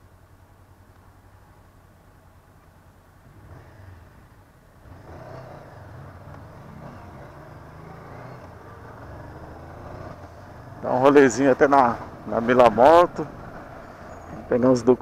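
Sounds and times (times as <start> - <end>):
road noise: 0.0 - 15.0
motorcycle engine running: 3.3 - 15.0.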